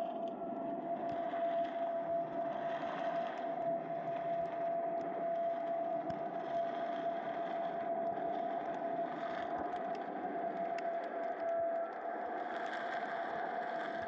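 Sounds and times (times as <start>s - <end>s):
steady underwater hum: 0.0s - 14.0s
faint clicks: 3.2s - 14.0s.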